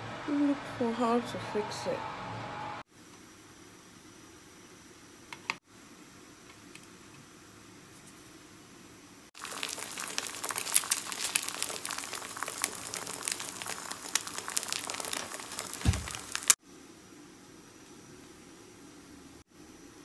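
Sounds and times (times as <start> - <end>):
eggs sizzling in oil: 9.3 - 16.6.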